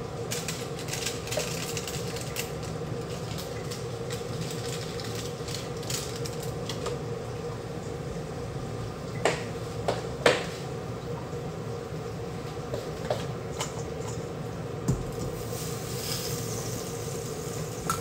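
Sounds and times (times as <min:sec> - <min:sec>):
butter sizzling in a frying pan: 0:15.1 - 0:18.0.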